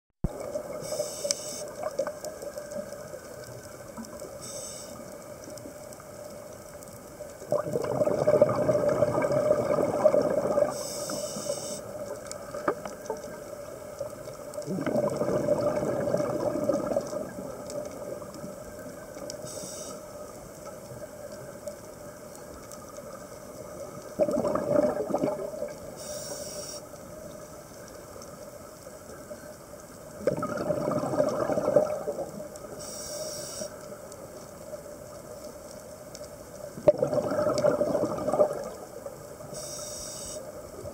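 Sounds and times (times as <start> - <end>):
exhaled bubbles underwater: 0.2 - 4.6, 7.4 - 19.6, 22.8 - 26.3, 30.1 - 32.8, 36.8 - 39.8
regulator inhale hiss: 0.7 - 1.8, 4.4 - 5.1, 10.7 - 12.0, 19.4 - 20.3, 26.0 - 27.0, 32.7 - 33.8, 39.5 - 40.6.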